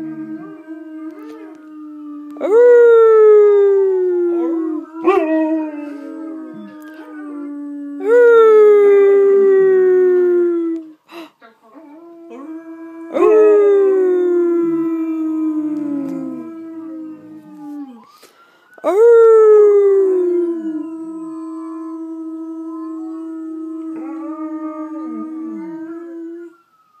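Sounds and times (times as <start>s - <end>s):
dogs howling: 0.0s - 10.8s, 18.9s - 26.5s.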